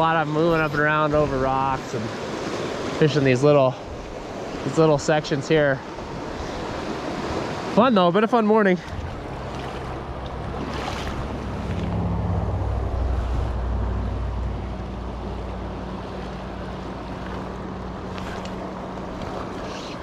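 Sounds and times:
river water rushing over rocks: 0:00.0 - 0:20.0
wind rumbling on microphone: 0:08.9 - 0:17.0.

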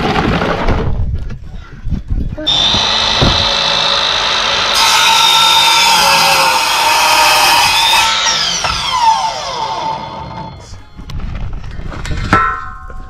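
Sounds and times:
saw blade cutting wood: 0:02.5 - 0:10.7
miter saw whining: 0:02.5 - 0:11.0.

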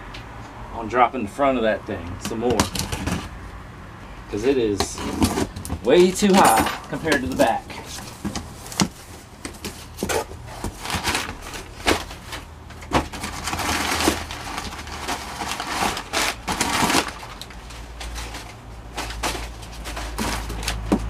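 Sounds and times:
cardboard flaps scraping and knocking: 0:04.7 - 0:21.0
packing paper crumpling: 0:05.0 - 0:20.9.

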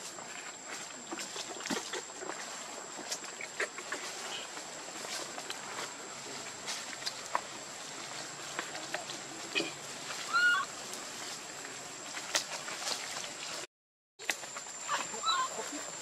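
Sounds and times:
insect drone: 0:00.0 - 0:16.0
rustling in dry leaves: 0:00.0 - 0:16.0
monkey squeak: 0:10.3 - 0:10.7, 0:14.9 - 0:15.6.

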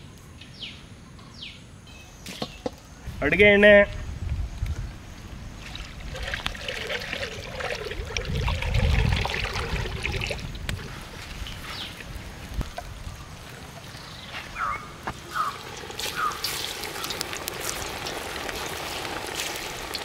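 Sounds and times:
oil trickling into a pot: 0:05.6 - 0:11.6, 0:15.3 - 0:20.0.

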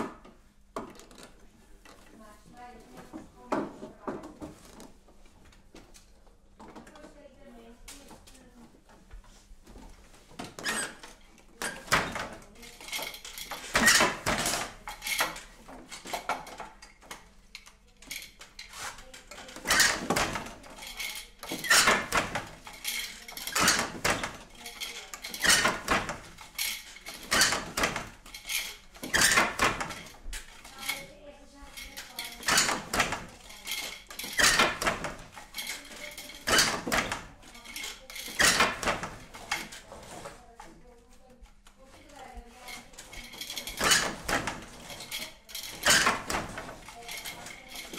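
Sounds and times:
loom knocking and clattering: 0:08.1 - 0:40.8, 0:42.5 - 0:47.9.

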